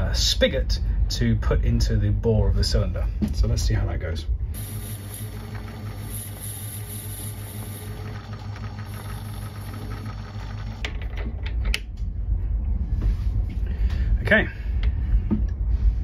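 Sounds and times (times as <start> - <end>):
metal lathe running: 4.6 - 10.9.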